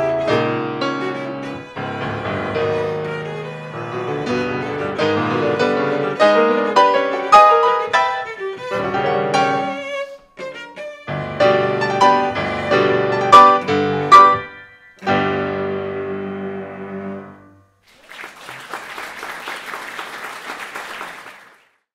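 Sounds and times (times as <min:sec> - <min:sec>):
cello and piano playing: 0:00.0 - 0:17.5
audience applause: 0:17.9 - 0:21.9.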